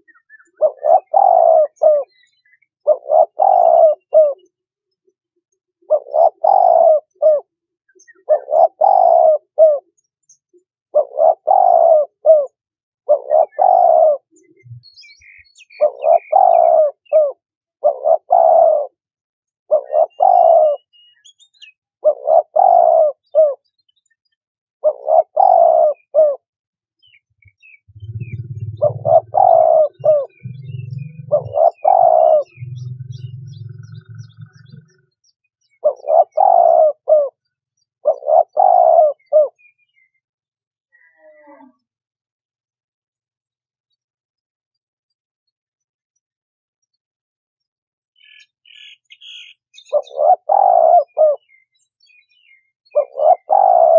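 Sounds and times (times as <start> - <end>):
dove cooing: 0.0 - 4.5, 5.8 - 10.0, 10.9 - 15.0, 15.6 - 19.0, 19.7 - 21.0, 22.0 - 23.7, 24.8 - 26.5, 27.1 - 39.7, 49.2 - 51.6, 52.4 - 53.9.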